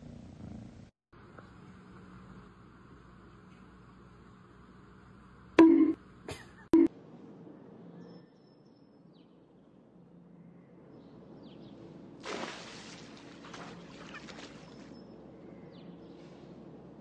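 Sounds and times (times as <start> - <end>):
faint bird chirps: 7.5 - 11.8
cat splashing into pool: 12.2 - 14.9
water sloshing: 12.2 - 14.9.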